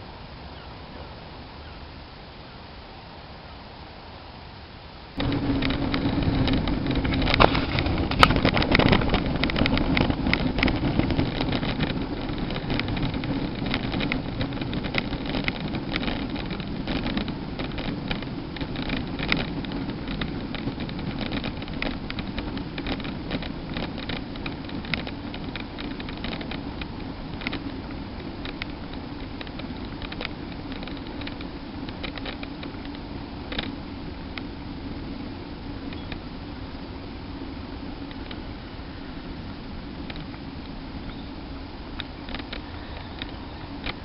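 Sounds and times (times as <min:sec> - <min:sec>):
wind and tyre noise on tarmac: 0:00.0 - 0:44.0
bicycle clicks and knocks: 0:05.2 - 0:34.5, 0:40.0 - 0:44.0.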